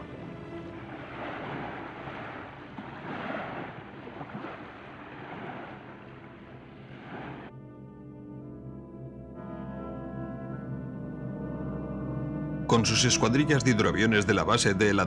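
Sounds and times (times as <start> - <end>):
sea waves washing: 0.0 - 7.5.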